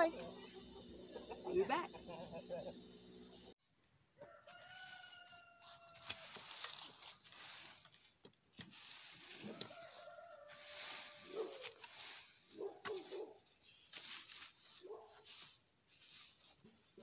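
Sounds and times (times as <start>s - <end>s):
rooster crowing: 4.2s - 6.6s, 9.3s - 11.8s
rake scraping through dry leaves: 4.5s - 17.0s.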